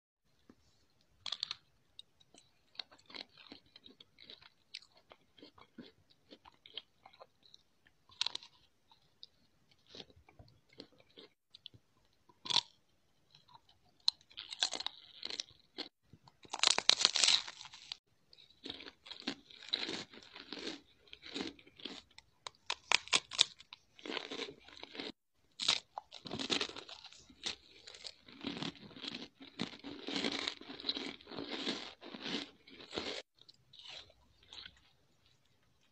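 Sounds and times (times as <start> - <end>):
chocolate shell crunching: 13.4 - 33.2.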